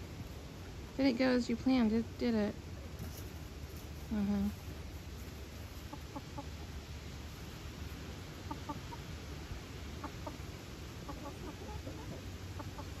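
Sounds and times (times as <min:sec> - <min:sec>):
hens clucking: 0:05.2 - 0:13.0.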